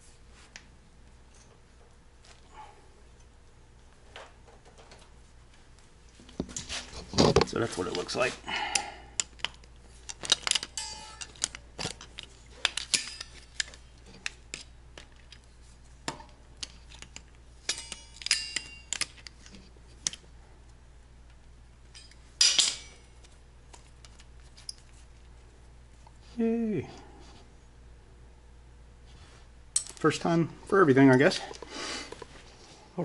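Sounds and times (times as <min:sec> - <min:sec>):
metal clatter: 0:10.1 - 0:13.7.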